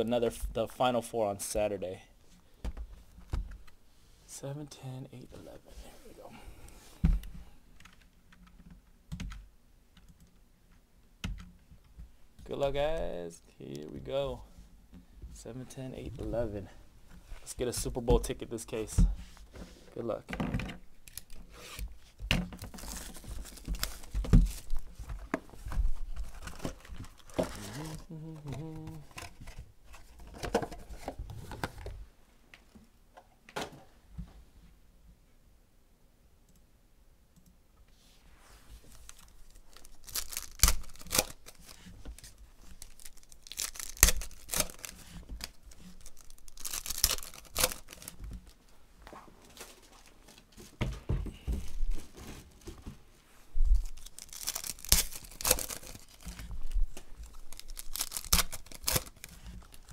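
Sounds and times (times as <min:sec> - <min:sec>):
foil packs tearing and crinkling: 0:22.6 - 0:24.8, 0:26.2 - 0:29.4, 0:38.9 - 0:48.6, 0:53.8 - 0:59.9
cards being handled: 0:38.8 - 0:50.8, 0:53.7 - 0:59.9.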